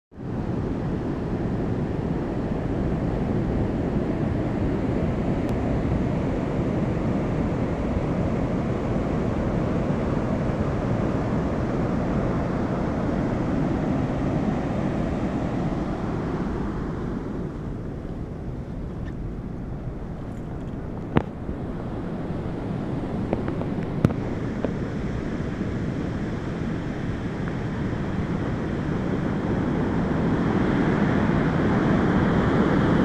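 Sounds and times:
deep rumble: 12.7 - 24.6.

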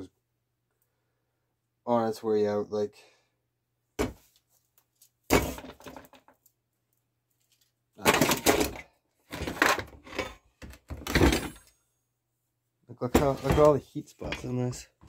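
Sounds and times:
crackling and rustling handling noise: 4.2 - 11.0, 13.0 - 15.0.

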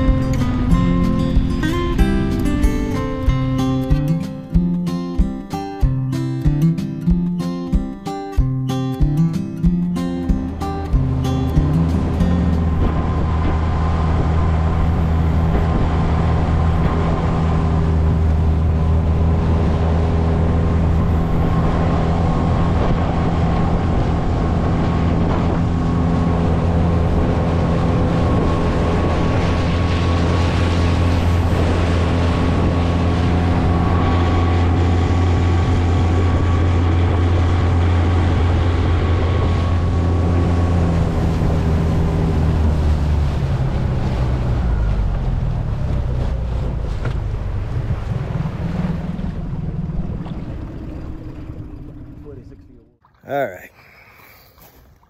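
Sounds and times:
outboard motor running: 0.0 - 53.6
water and wind noise: 0.0 - 55.0.

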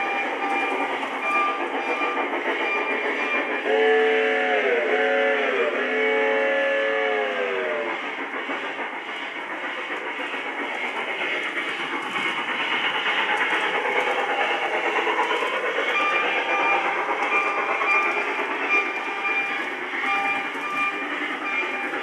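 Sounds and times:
model steam locomotive chuffing: 0.0 - 22.0
model train wheels on track: 0.0 - 22.0.

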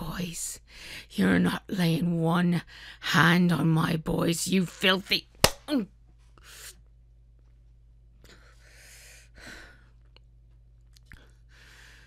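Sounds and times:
faint low hum: 0.0 - 12.0
woman breathing hard: 8.2 - 10.1, 11.2 - 12.0.

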